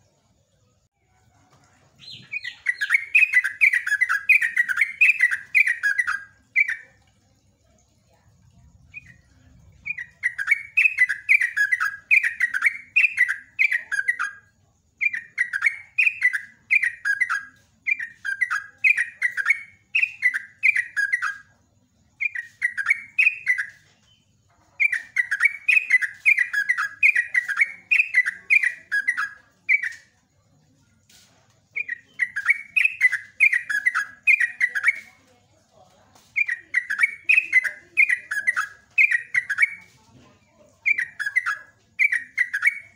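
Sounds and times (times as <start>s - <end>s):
bulbul singing chattering notes: 2.0s - 7.0s, 8.6s - 21.5s, 24.8s - 30.0s, 31.8s - 35.2s, 36.3s - 39.9s, 40.8s - 42.9s.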